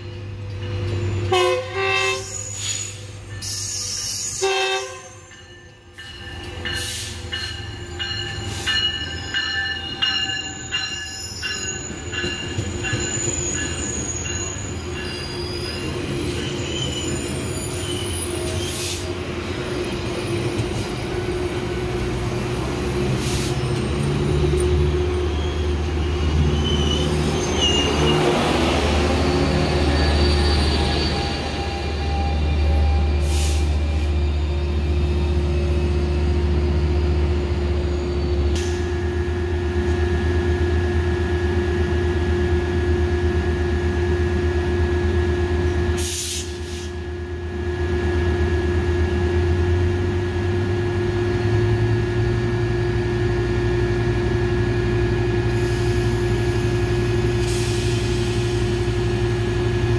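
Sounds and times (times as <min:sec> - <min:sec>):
train wheels squealing: 0:00.0 - 0:39.2.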